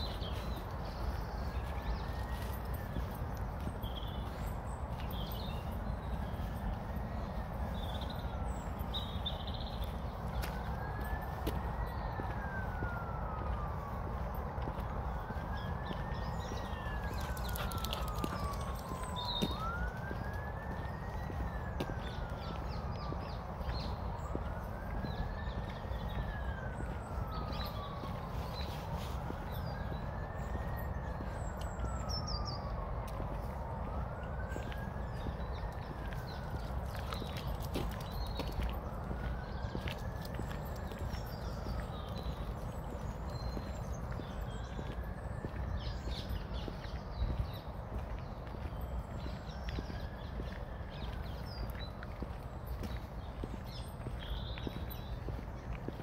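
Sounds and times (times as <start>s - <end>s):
distant siren wailing: 0.0s - 56.0s
footsteps on path: 0.0s - 56.0s.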